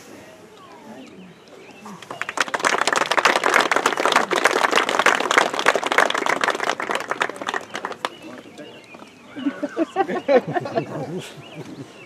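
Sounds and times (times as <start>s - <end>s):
crowd applauding: 1.8s - 8.8s.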